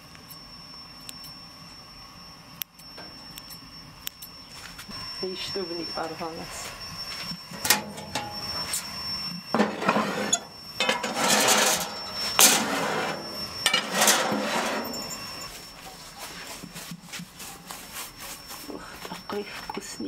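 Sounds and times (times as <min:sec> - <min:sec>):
metal pans scraping and clanking: 0:07.5 - 0:08.5, 0:09.6 - 0:15.5.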